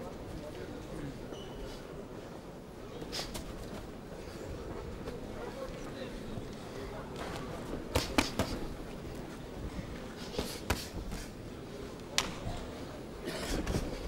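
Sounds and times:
arena crowd noise: 0:00.0 - 0:14.0.

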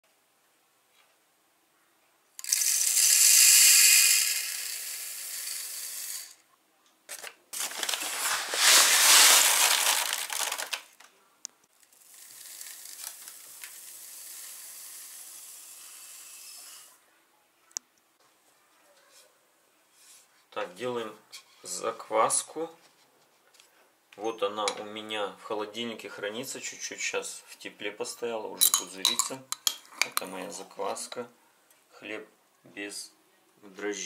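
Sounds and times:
bowl scooping grain in paper sack: 0:07.6 - 0:10.8
grain pouring into hopper: 0:07.6 - 0:10.8, 0:12.0 - 0:14.8.

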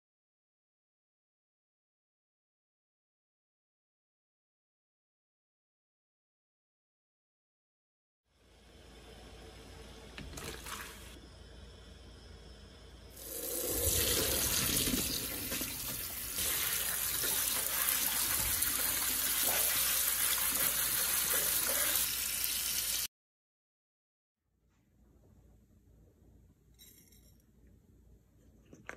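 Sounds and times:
tap water running into colander: 0:10.2 - 0:11.2, 0:13.2 - 0:23.1
boiling water bubbling: 0:13.2 - 0:22.0.

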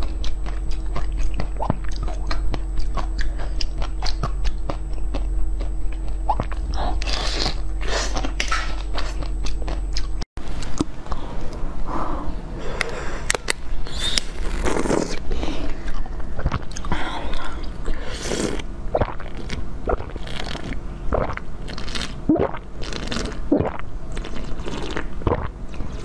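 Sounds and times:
crunching and chewing sweets: 0:00.0 - 0:11.2, 0:12.8 - 0:26.0.

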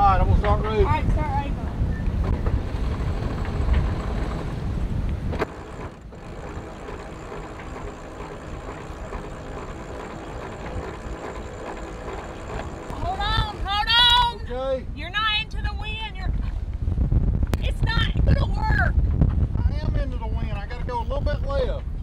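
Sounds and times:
wind buffeting microphone: 0:00.0 - 0:22.0
steady rushing hum: 0:00.2 - 0:15.6
faint steady tones: 0:05.3 - 0:14.5.

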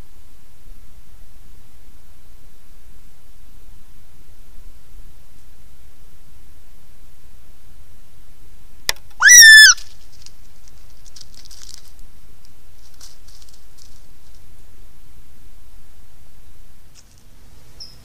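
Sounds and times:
fox high-pitched call: 0:09.2 - 0:09.9.

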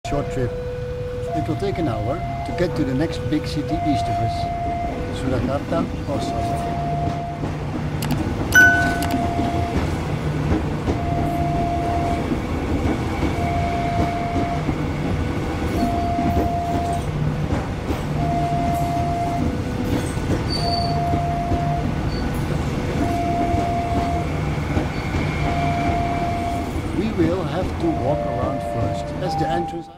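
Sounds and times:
electric train passing: 0:00.1 - 0:29.9
electronic warning tone: 0:00.2 - 0:05.4, 0:06.1 - 0:07.5, 0:08.6 - 0:09.8, 0:15.8 - 0:17.1, 0:18.2 - 0:19.6, 0:20.6 - 0:22.2, 0:23.0 - 0:24.3, 0:25.4 - 0:29.9
short chime: 0:08.6 - 0:09.5.

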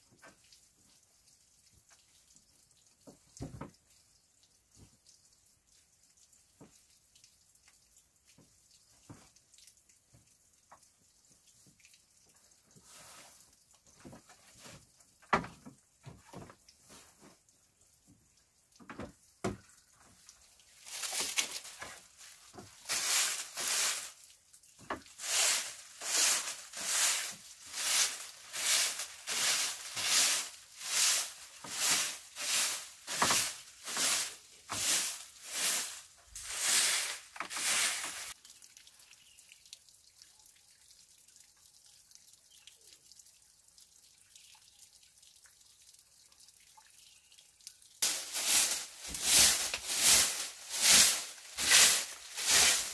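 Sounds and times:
broom sweeping wooden floor: 0:20.9 - 0:24.2, 0:24.9 - 0:38.4, 0:48.0 - 0:52.9.

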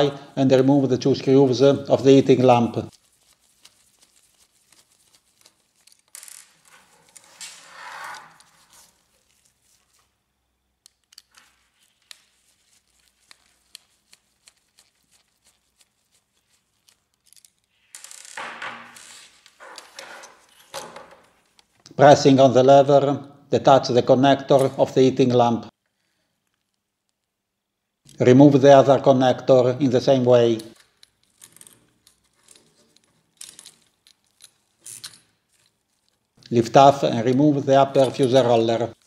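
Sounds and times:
rustling: 0:02.9 - 0:10.2.

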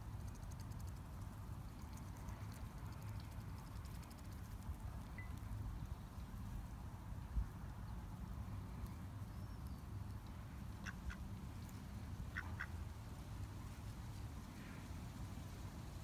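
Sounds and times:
ducks quacking: 0:12.3 - 0:12.8.

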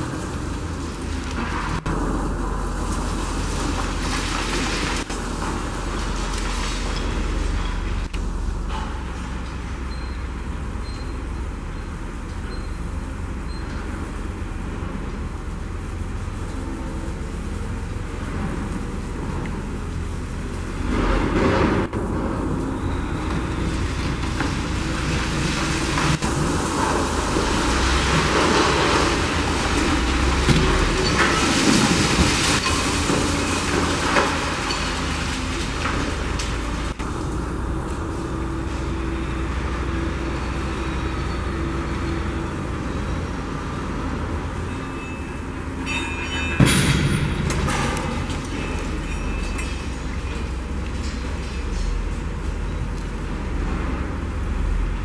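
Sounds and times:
crane engine running: 0:00.0 - 0:55.0
rubble crashing down: 0:24.1 - 0:36.9
loud crash with clanking metal: 0:45.8 - 0:50.5.

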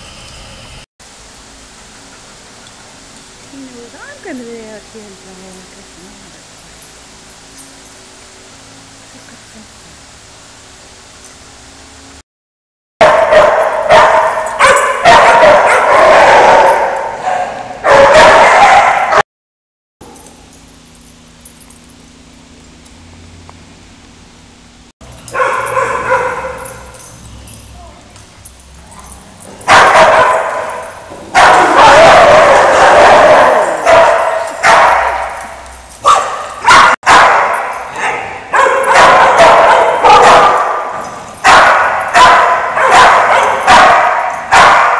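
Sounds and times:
dogs barking: 0:13.0 - 0:19.2, 0:25.2 - 0:27.2, 0:28.8 - 0:44.9.

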